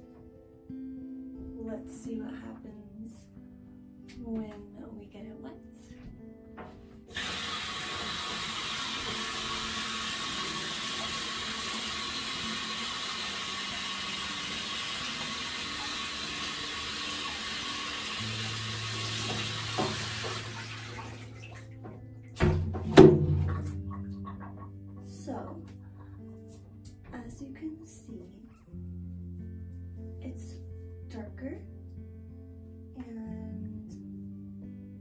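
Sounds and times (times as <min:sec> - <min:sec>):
shower spraying water: 0:07.1 - 0:21.8.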